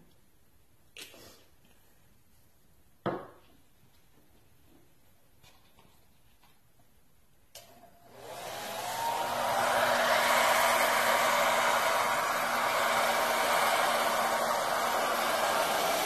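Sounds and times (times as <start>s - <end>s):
hair dryer blowing: 7.6s - 16.0s.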